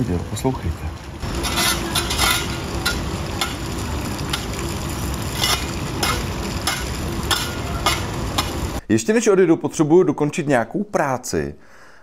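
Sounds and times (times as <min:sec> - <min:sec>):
shovel scraping over paving: 0:01.2 - 0:08.6.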